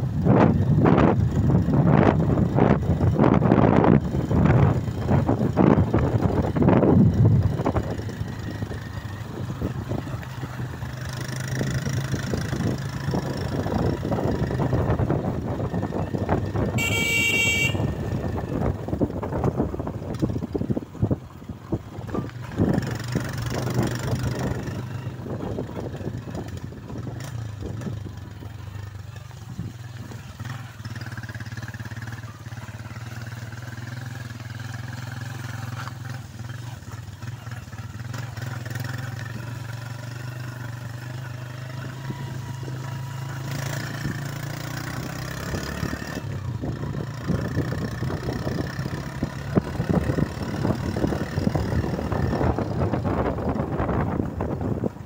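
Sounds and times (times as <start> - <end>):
wind buffeting microphone: 0.0 - 17.0, 17.8 - 30.1, 42.2 - 55.0
motorcycle engine running: 0.0 - 55.0.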